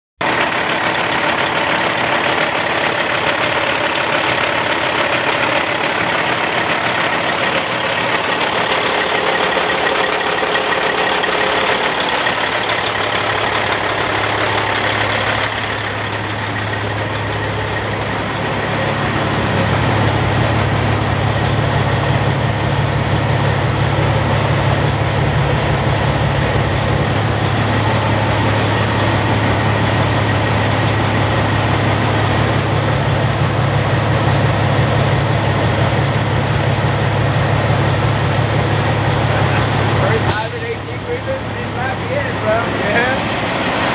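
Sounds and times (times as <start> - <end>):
diesel truck engine idling: 0.2 - 43.9
steady low drone: 0.4 - 43.9
loud hiss: 40.3 - 40.9.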